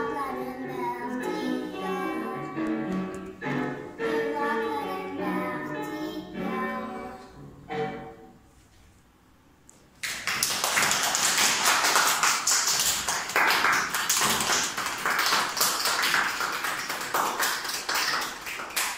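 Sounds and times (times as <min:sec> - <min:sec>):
children clapping: 0:10.0 - 0:18.9.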